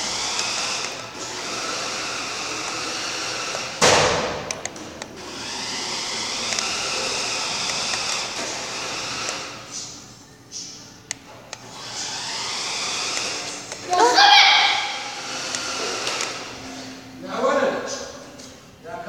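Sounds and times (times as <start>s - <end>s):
toy truck motor whining: 0.0s - 3.8s, 4.4s - 10.7s, 11.6s - 16.9s
loud knock: 3.8s - 4.5s.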